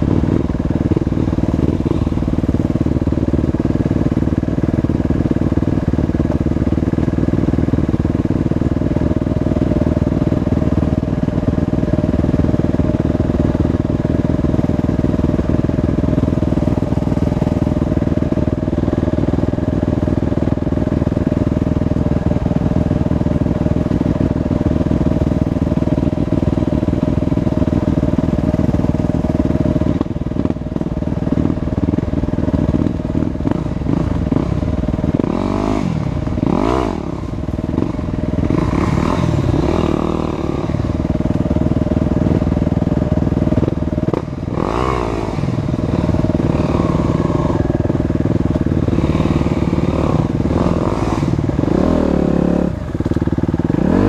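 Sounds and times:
dirt bike engine revving: 33.4s - 42.3s, 43.4s - 54.0s.

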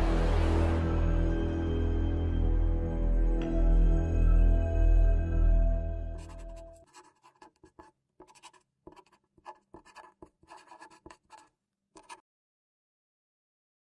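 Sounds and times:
marker pen scratching: 6.2s - 12.2s.

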